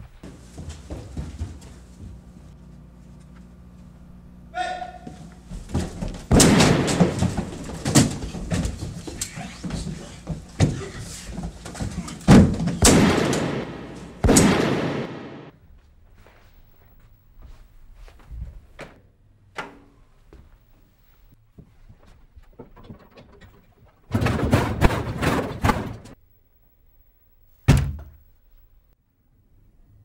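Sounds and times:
voices shouting and grunting: 4.5s - 5.3s, 9.0s - 12.3s
hits and thuds against walls: 5.1s - 15.2s, 24.1s - 26.2s, 27.7s - 28.1s.

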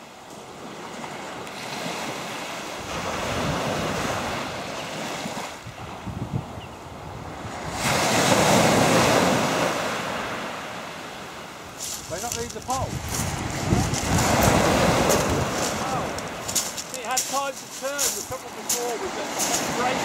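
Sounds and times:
waves washing up shingle: 0.6s - 6.0s, 7.3s - 20.0s
wind buffeting microphone: 5.6s - 9.4s, 11.7s - 20.0s
big wave crashing: 12.2s - 20.0s.

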